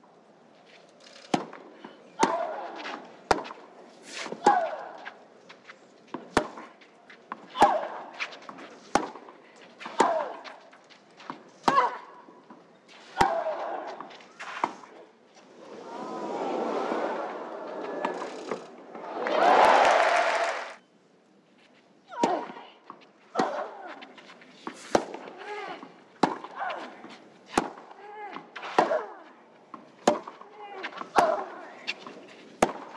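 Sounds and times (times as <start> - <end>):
racket striking tennis ball: 2.2 - 4.7, 6.2 - 6.7, 7.5 - 9.2, 23.4 - 27.9, 30.0 - 32.9.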